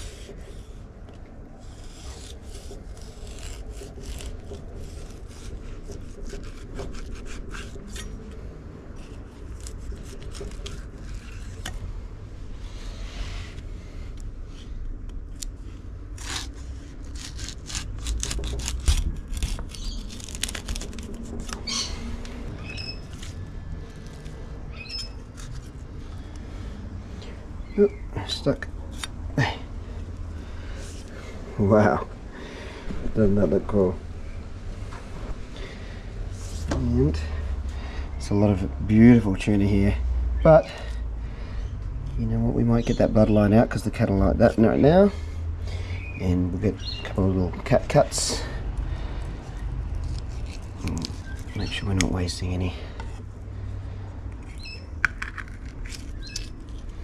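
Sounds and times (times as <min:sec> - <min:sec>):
knife sawing through fish: 0:01.5 - 0:08.2, 0:08.9 - 0:11.8, 0:16.1 - 0:23.4, 0:49.4 - 0:51.9.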